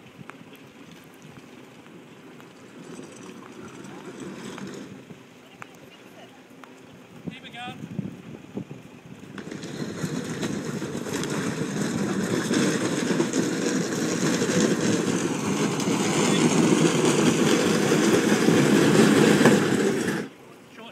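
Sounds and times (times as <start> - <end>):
boat hull scraping on ramp: 2.5 - 5.2, 9.2 - 20.4.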